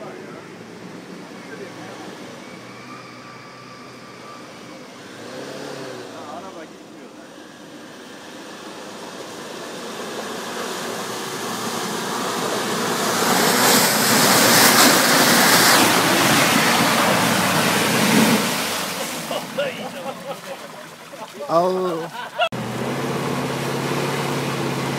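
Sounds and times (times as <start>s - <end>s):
tyres churning splashing mud: 8.2s - 24.9s.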